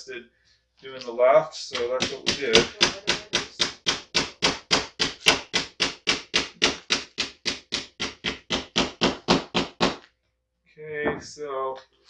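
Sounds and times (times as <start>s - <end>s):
small hammer tapping metal: 1.7s - 9.1s.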